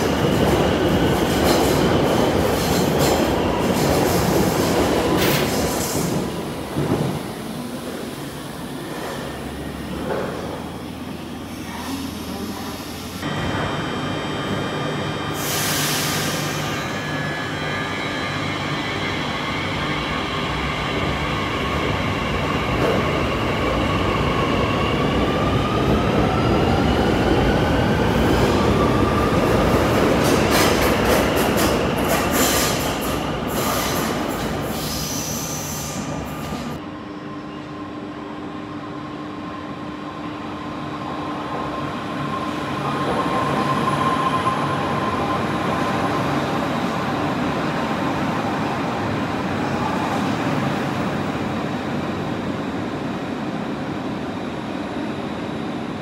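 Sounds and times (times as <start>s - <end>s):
train wheels clacking and squealing: 0.0s - 7.2s, 29.0s - 36.8s.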